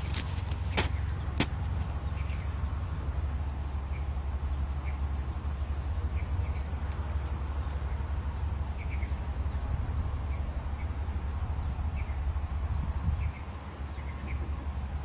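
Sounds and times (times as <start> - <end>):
wind rumbling on microphone: 0.0 - 3.6, 5.9 - 15.0
small birds chirping: 0.0 - 11.0.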